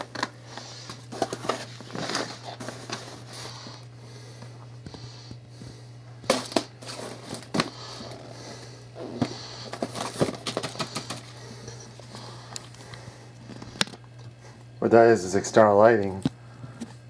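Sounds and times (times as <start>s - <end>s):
cardboard rustling: 0.0s - 3.6s, 6.3s - 8.1s, 9.0s - 11.4s
steady low hum: 0.0s - 17.0s
cardboard boxes tapping and knocking: 9.2s - 11.2s.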